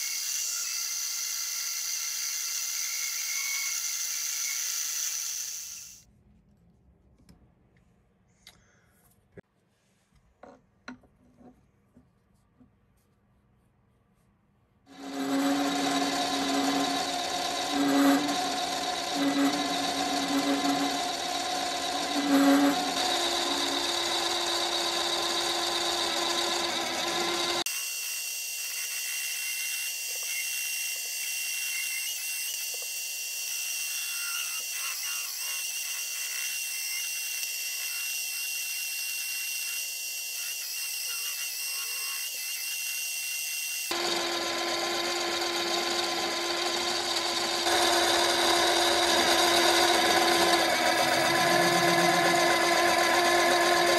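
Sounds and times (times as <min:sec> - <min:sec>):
metal lathe whining while cutting: 0:14.9 - 0:53.9.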